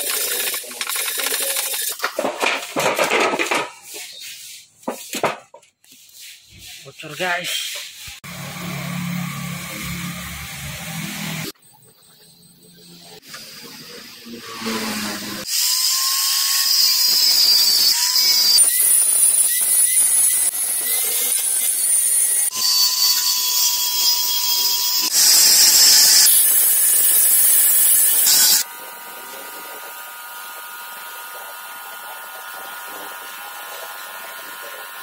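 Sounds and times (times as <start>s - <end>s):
power tool whining: 8.2s - 11.6s, 13.0s - 35.0s.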